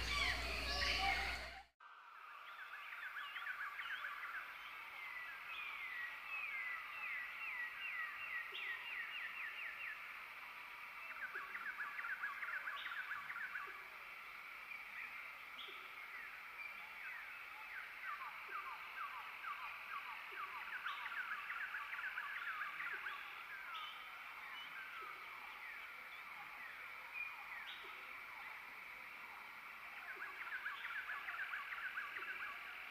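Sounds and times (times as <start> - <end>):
frogs chirping: 0.0 - 32.9.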